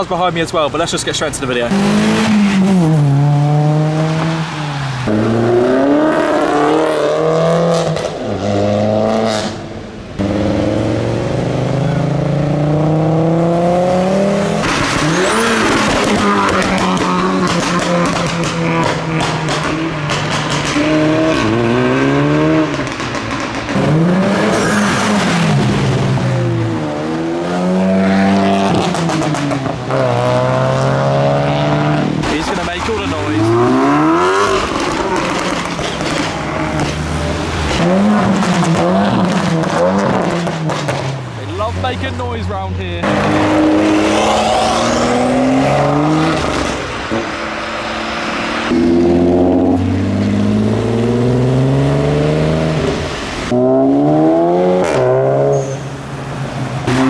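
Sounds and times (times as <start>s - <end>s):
cars accelerating hard: 1.3s - 57.0s.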